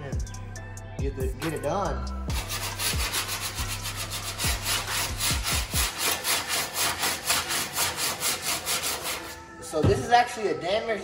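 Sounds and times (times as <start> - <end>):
sanding block scraping: 2.3 - 9.5.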